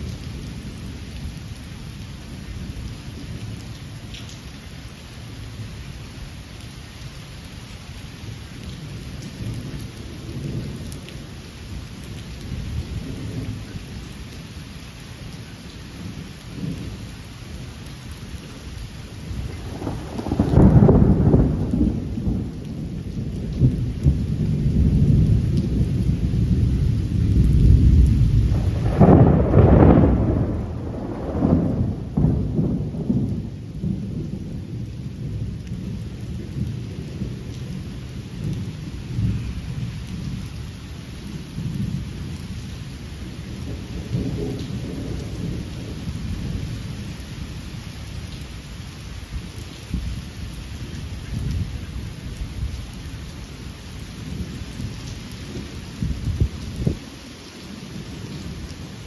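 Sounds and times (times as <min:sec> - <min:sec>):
steady rain falling: 0:00.0 - 0:59.0
thunder rumbling: 0:19.1 - 0:40.6, 0:41.2 - 0:48.0, 0:54.1 - 0:59.0.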